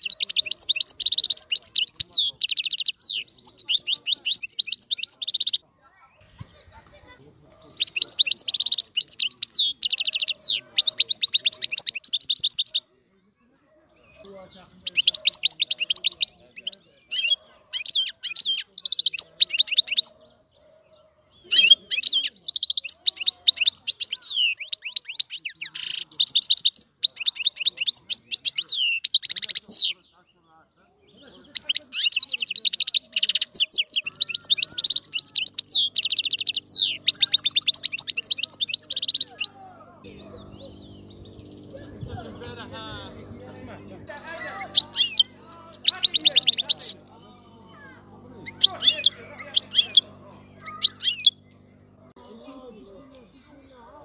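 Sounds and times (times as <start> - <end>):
goldfinch twittering song: 0.0 - 13.0, 13.9 - 53.6.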